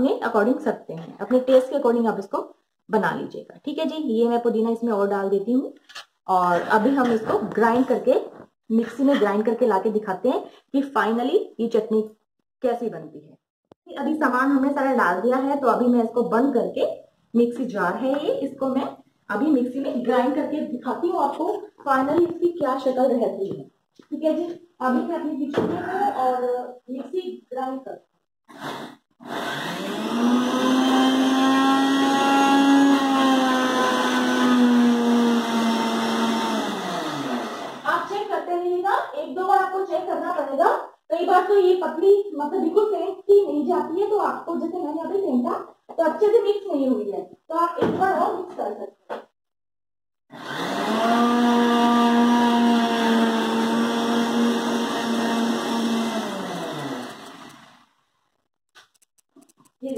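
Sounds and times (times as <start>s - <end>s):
mixer grinder motor running: 28.5s - 38.0s, 50.3s - 58.0s.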